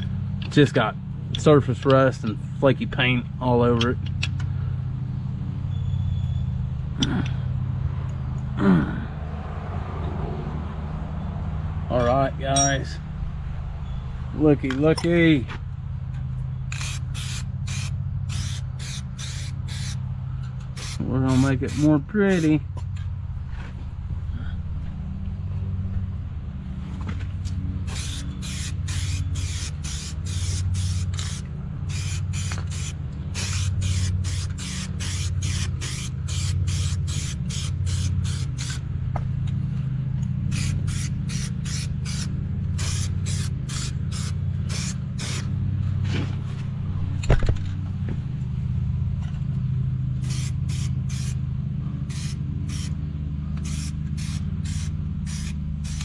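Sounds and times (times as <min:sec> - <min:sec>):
low rumble: 0:06.6 - 0:14.8, 0:22.8 - 0:28.0
spray paint can hissing: 0:16.7 - 0:20.0, 0:20.7 - 0:22.6, 0:27.8 - 0:38.8, 0:40.5 - 0:45.6, 0:50.2 - 0:51.4, 0:52.1 - 0:53.0, 0:53.6 - 0:56.0.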